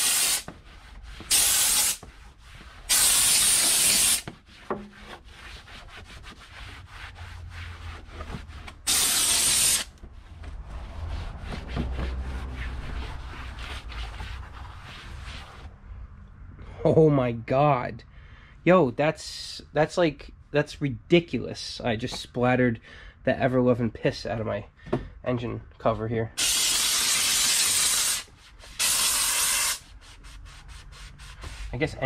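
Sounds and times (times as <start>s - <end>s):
steam cleaner hissing: 0.0s - 0.5s, 1.3s - 2.0s, 2.9s - 4.2s, 8.9s - 9.9s, 26.4s - 29.8s
towel rubbing plastic: 0.0s - 15.7s, 27.9s - 32.0s.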